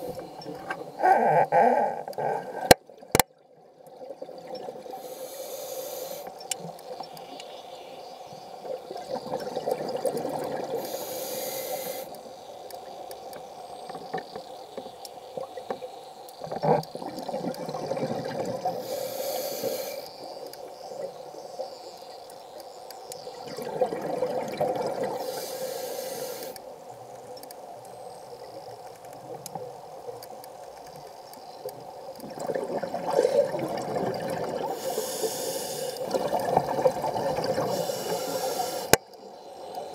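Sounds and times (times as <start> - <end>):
regulator inhalation hiss: 4.9 - 6.5, 10.7 - 12.6, 18.7 - 20.4, 25.1 - 26.7, 34.6 - 36.1, 37.6 - 39.0
exhaled bubbles rumbling: 8.7 - 10.8, 16.6 - 18.9, 23.4 - 25.2, 32.2 - 34.8, 36.0 - 38.2.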